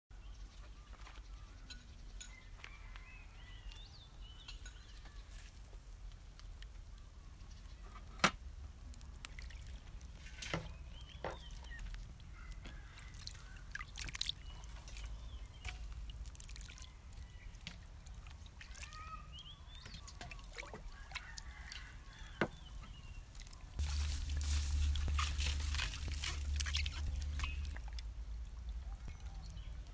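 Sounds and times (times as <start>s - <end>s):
water dripping: 8.5s - 29.9s
light water sloshing: 8.9s - 29.9s.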